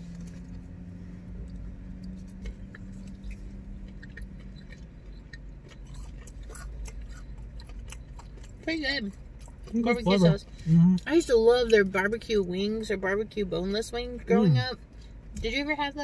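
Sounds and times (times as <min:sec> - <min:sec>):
low steady hum: 0:00.0 - 0:16.0
chewing and wet mouth clicks: 0:01.4 - 0:09.8.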